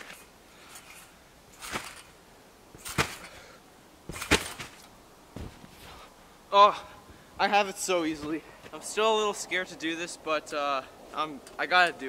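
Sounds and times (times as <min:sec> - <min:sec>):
trampoline bouncing: 0:00.0 - 0:06.1.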